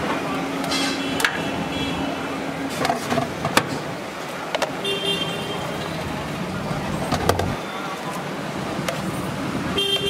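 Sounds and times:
street traffic hum: 0.0s - 10.0s.

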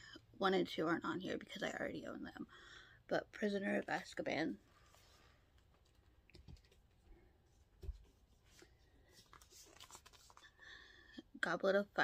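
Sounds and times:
soft clicks and rustles of books: 3.9s - 10.6s.

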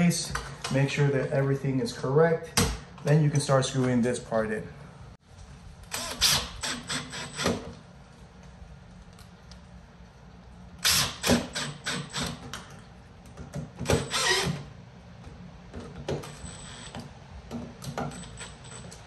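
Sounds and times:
cordless drill driving screws: 5.9s - 7.7s, 10.8s - 12.4s, 13.9s - 14.6s.

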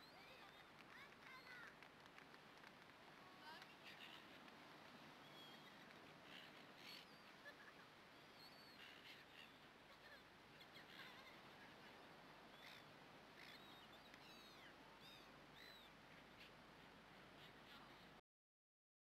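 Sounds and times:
faint bird chirps: 5.2s - 16.6s.

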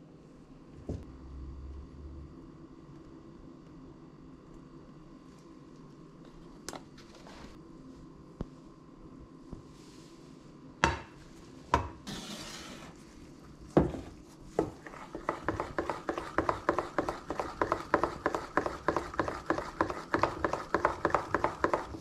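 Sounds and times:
whisk clicking in metal bowl: 14.8s - 22.0s.

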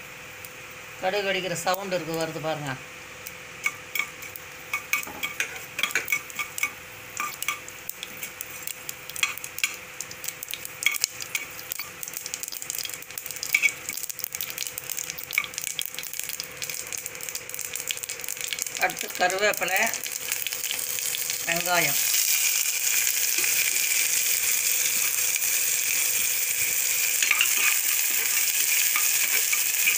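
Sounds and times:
seeds popping in hot oil: 3.2s - 29.9s
spatula scraping pan: 27.2s - 29.9s.

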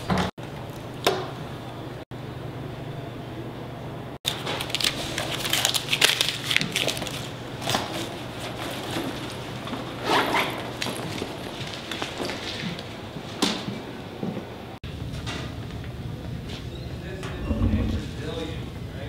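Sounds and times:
paper crinkling and rustling: 4.3s - 9.9s, 10.6s - 12.9s
low room hum: 10.8s - 19.0s.

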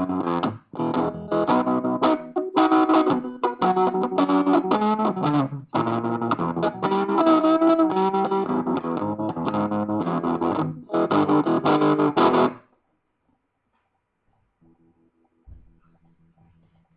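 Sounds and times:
guitar chords and picked notes: 0.0s - 12.7s.

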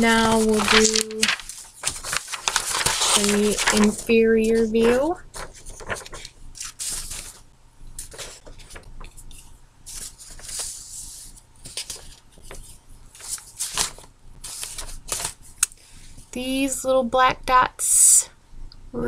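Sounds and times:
paper rustling and crinkling: 0.0s - 7.4s, 8.0s - 15.7s.

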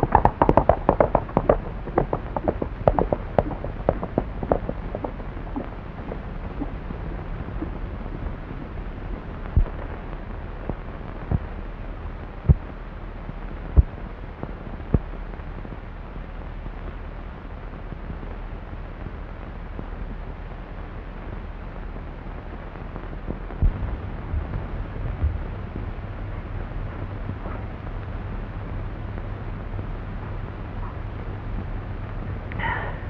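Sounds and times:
sharp low pops: 0.0s - 8.8s
film soundtrack hiss and hum: 0.0s - 33.0s.

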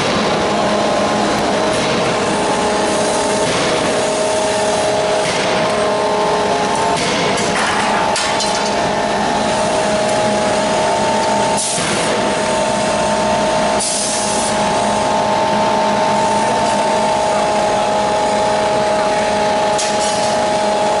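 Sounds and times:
forging hammer machinery humming: 0.0s - 21.0s.

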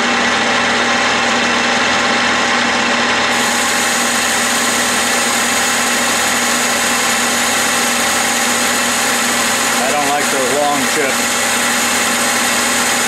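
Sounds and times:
metal lathe humming: 0.0s - 13.0s
cutting tool hiss: 3.3s - 13.0s.

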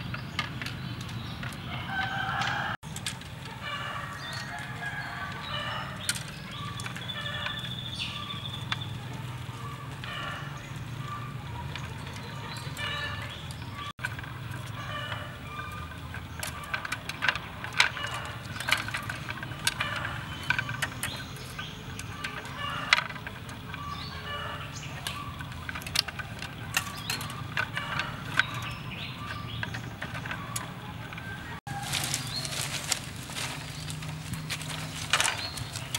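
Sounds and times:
chickens clucking: 0.0s - 35.9s
bamboo strips clicking: 11.7s - 35.9s.

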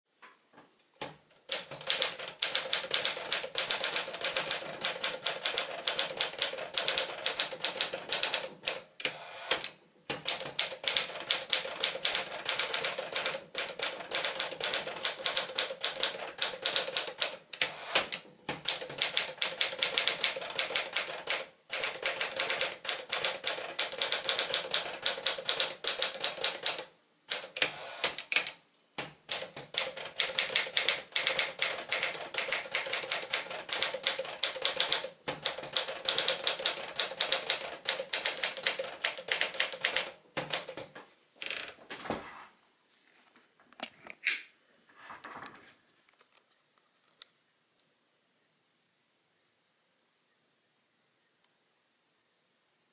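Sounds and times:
manual typewriter typing: 1.0s - 28.6s, 29.2s - 41.6s.

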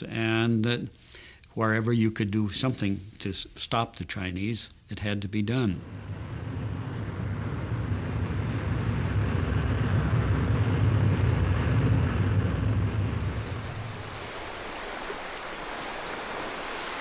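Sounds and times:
deep low rumble: 5.8s - 14.2s
ocean surf: 5.8s - 17.0s
wind: 5.8s - 17.0s.

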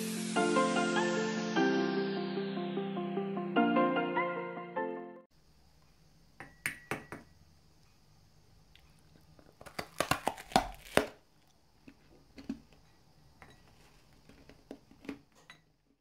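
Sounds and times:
puffed rice ball crunching: 9.2s - 12.8s, 13.6s - 15.3s.

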